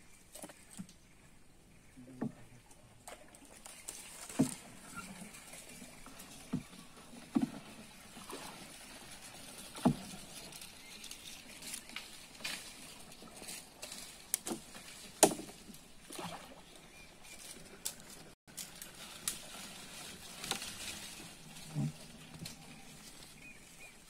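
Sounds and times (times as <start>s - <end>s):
small water splashes: 2.4s - 13.6s, 14.5s - 16.9s
paddle knocking on canoe hull: 6.4s - 8.5s, 9.8s - 10.2s.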